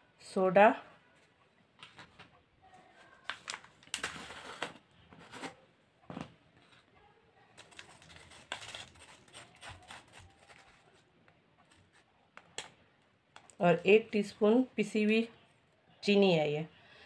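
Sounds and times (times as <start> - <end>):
handling rustles and clicks: 1.8 - 13.5.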